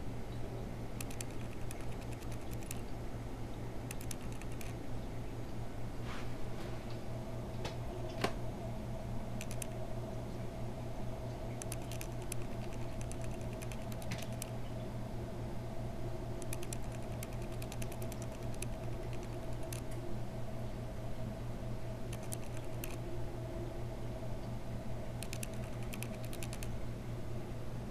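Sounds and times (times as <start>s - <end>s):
aquarium air pump humming: 0.0s - 27.9s
fine light clicking: 1.0s - 2.9s, 3.9s - 4.8s, 9.4s - 9.8s, 11.5s - 14.8s, 16.4s - 20.0s, 22.1s - 23.0s, 25.2s - 26.7s.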